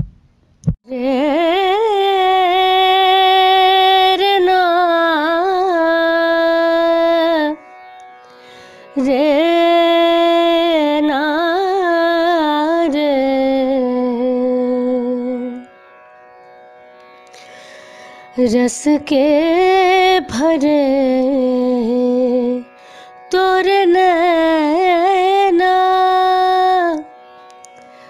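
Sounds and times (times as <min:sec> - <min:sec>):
woman singing wordless classical phrases: 0:00.8 - 0:07.6, 0:08.9 - 0:15.7, 0:18.4 - 0:22.7, 0:23.3 - 0:27.1
faint tanpura drone: 0:00.9 - 0:28.0.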